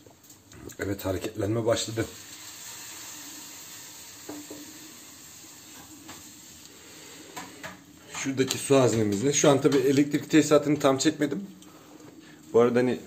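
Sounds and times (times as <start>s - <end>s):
coffee maker heater hissing: 0.0s - 8.8s.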